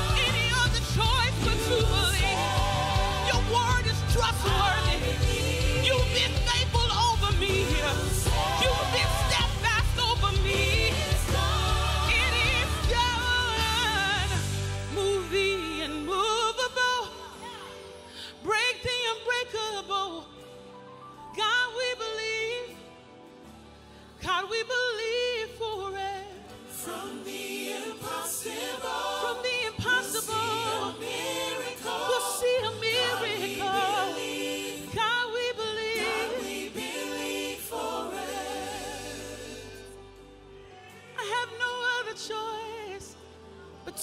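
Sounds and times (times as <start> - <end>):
singers holding long notes: 0.0 - 16.6, 26.6 - 42.5.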